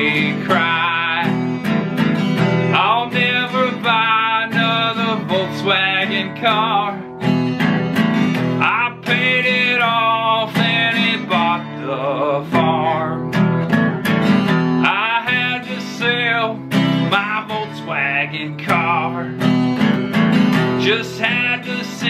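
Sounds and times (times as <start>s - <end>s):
man singing: 0.0s - 7.3s, 8.4s - 13.6s, 14.8s - 19.6s, 20.6s - 22.0s
strummed acoustic guitar: 0.0s - 22.0s.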